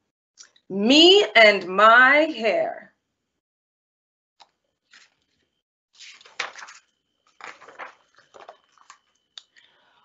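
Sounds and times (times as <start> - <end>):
book pages rustling: 4.9 - 5.4, 6.0 - 9.6.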